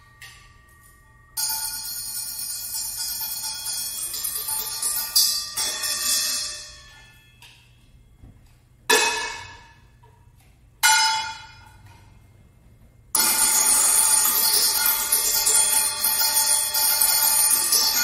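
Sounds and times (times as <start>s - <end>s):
bell-like metal strikes: 0.0s - 7.8s, 13.2s - 18.0s.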